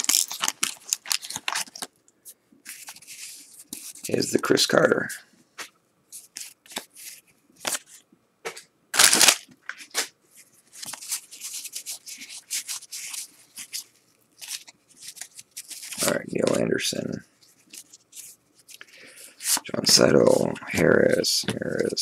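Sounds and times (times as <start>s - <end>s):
papery rustle: 9.0s - 22.0s.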